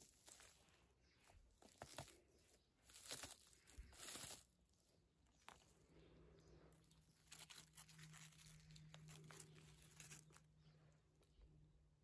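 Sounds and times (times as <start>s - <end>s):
dry leaves crackling: 0.0s - 0.8s, 1.6s - 4.7s, 6.9s - 10.6s
footstep crunching on dry leaves: 0.0s - 4.6s, 7.1s - 10.5s.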